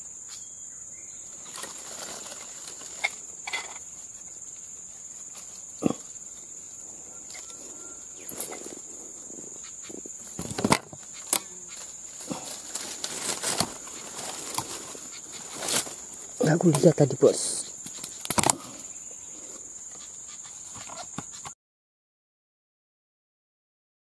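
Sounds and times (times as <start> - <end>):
insects droning: 0.0 - 21.6
fishing pole rustles and knocks: 1.6 - 3.9, 10.3 - 11.4.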